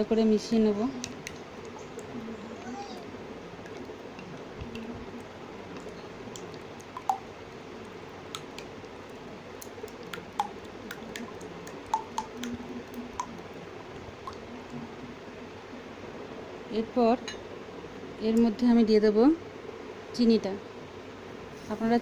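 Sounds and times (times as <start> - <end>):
wet squishing of beaten eggs: 0.9 - 2.2, 3.5 - 14.7
spoon tapping bowl: 10.1 - 12.6.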